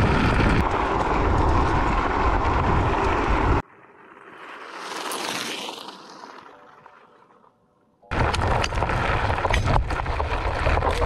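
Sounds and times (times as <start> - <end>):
wind rumble on microphone: 0.0 - 3.6, 8.1 - 11.0
tyres clicking on loose rock: 8.1 - 11.0.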